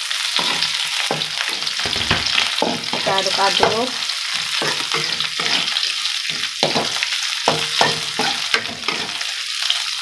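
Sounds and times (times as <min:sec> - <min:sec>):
food sizzling in oil: 0:00.0 - 0:10.0
metal spatula scraping a wok: 0:00.2 - 0:09.4.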